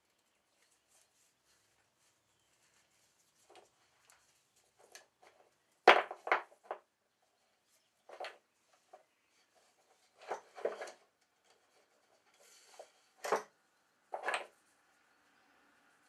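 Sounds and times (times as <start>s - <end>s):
cords rubbing and scraping wood: 8.0s - 14.6s.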